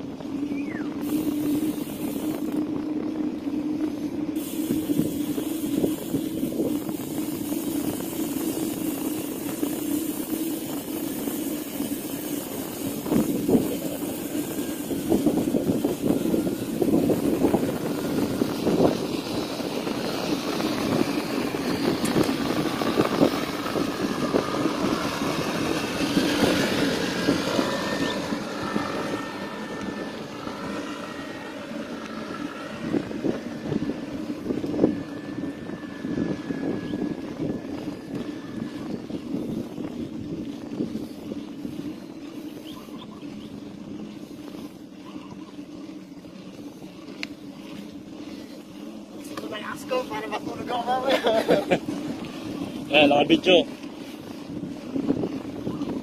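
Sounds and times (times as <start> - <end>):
passing motor vehicle engine: 0.0 - 40.8
tyre rumble on road: 0.0 - 56.0
wind on microphone: 0.0 - 56.0.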